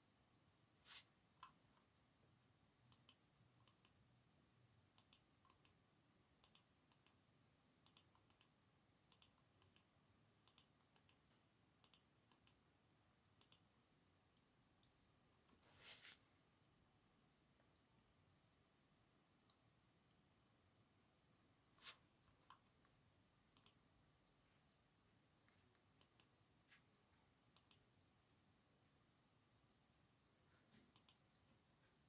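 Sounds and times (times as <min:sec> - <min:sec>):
computer mouse clicks: 0:01.4 - 0:01.9, 0:02.8 - 0:04.1, 0:04.8 - 0:12.7, 0:13.4 - 0:13.8, 0:21.8 - 0:23.9, 0:25.5 - 0:26.8, 0:27.5 - 0:28.0, 0:30.6 - 0:31.5.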